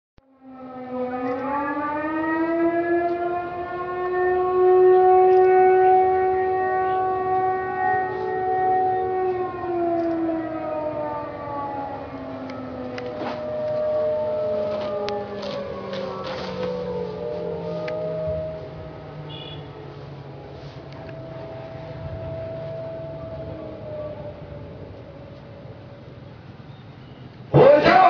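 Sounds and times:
siren wailing: 0.2s - 28.0s.

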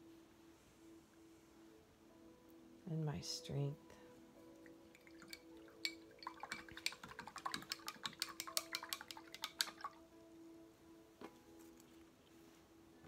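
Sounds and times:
brush clicking and tapping: 5.2s - 10.0s.

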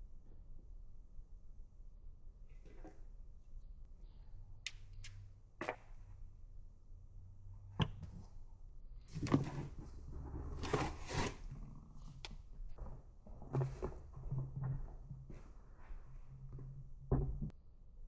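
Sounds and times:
plastic containers rustling and scraping: 9.1s - 17.5s.

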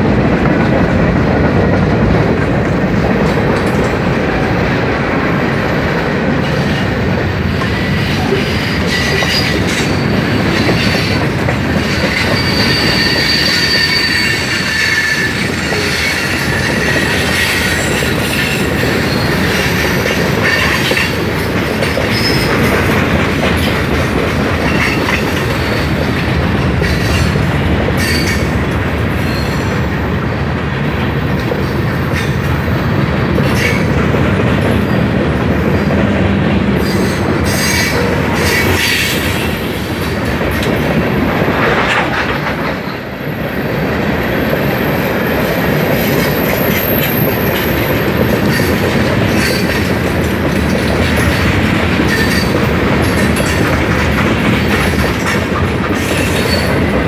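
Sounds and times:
train wheels rumbling on rail: 0.0s - 57.0s
high wheel squeal: 11.8s - 19.8s.

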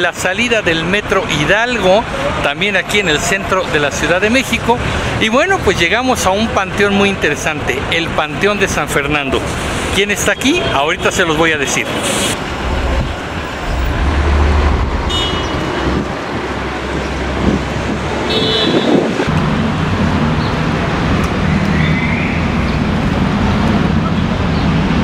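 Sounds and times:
traffic rumble: 0.0s - 25.0s
vehicle engine hum: 10.6s - 25.0s.

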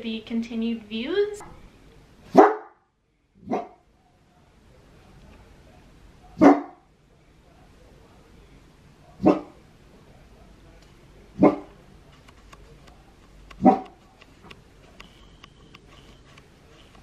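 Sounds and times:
dog barking: 2.3s - 2.8s, 3.4s - 3.8s, 6.3s - 6.8s, 9.1s - 9.6s, 11.4s - 11.8s, 13.6s - 14.0s.

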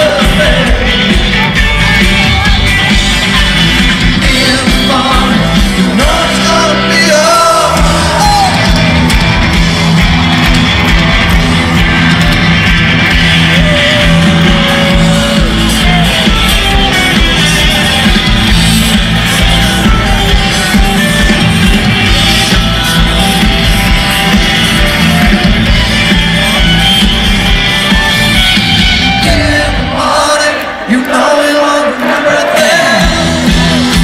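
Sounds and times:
person singing lead vocal: 0.0s - 8.9s, 13.4s - 16.2s, 29.0s - 34.0s
live rock band: 0.0s - 34.0s.

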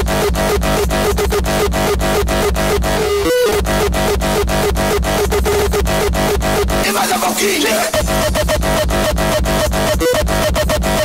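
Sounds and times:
hardcore electronic dance music: 0.0s - 11.0s.

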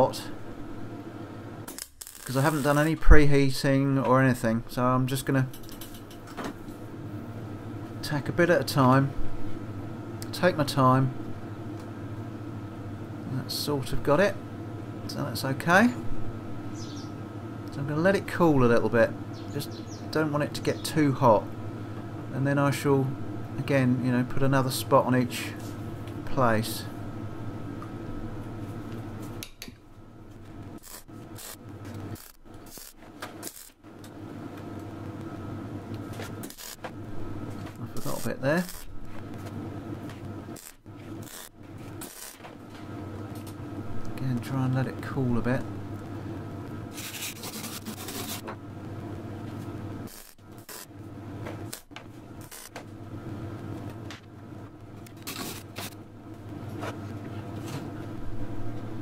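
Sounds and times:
electrical hum: 0.0s - 59.0s
welding arc crackling: 1.6s - 3.2s, 30.3s - 43.6s, 45.8s - 51.0s, 51.6s - 53.0s, 54.8s - 56.0s
harsh scratchy noise bursts: 2.0s - 3.0s, 30.8s - 33.8s, 36.4s - 36.9s, 40.5s - 42.4s, 46.9s - 48.4s, 50.1s - 50.9s, 52.4s - 52.7s.

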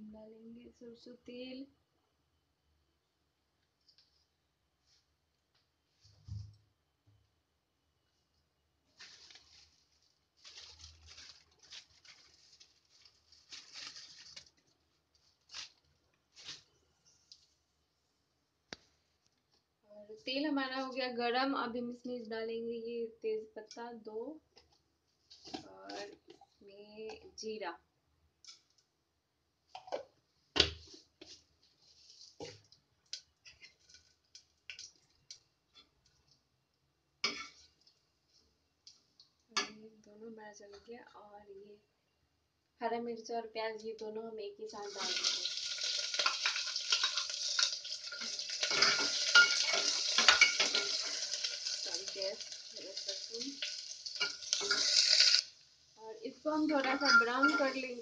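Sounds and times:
faint sizzle: 43.1s - 58.0s
oil crackling and hissing: 44.8s - 55.6s.

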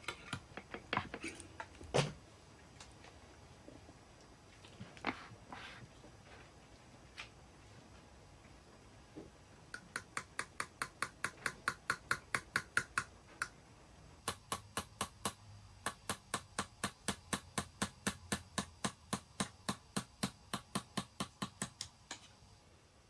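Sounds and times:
hammer tapping steel chisel: 9.8s - 13.1s.

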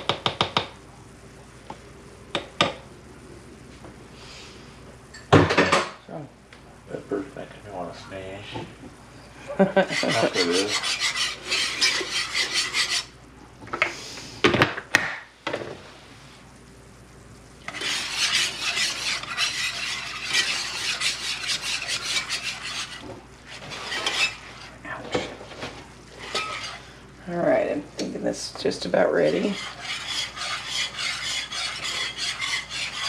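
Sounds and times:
whisk scraping skillet: 9.6s - 13.2s, 17.6s - 27.6s, 28.4s - 33.0s
whisk knocking: 9.8s - 13.1s, 17.7s - 24.7s, 26.2s - 26.8s, 29.2s - 33.0s.

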